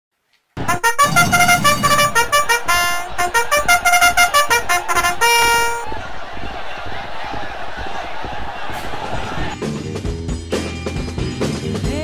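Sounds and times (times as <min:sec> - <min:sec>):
buzzy horn tune: 0:00.6 - 0:05.9.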